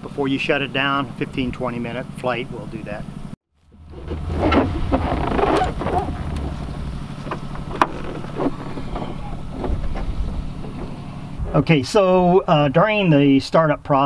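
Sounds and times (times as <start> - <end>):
rustling: 3.6 - 11.4
wind buffeting microphone: 3.8 - 11.6
sharp clicks and knocks: 3.9 - 11.0.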